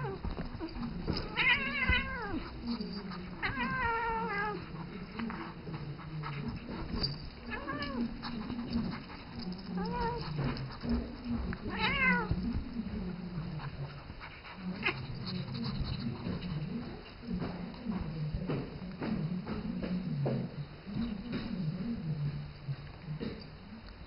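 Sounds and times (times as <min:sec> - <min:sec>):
animals scuffling on a chair: 0:00.0 - 0:24.0
cat meowing: 0:01.2 - 0:02.5, 0:03.4 - 0:04.6, 0:11.7 - 0:12.4.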